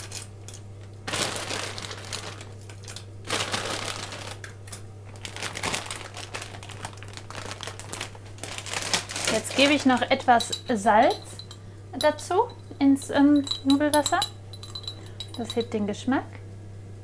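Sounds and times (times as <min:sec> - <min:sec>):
low steady hum: 0:00.0 - 0:17.0
cellophane bag crinkling: 0:01.0 - 0:10.2.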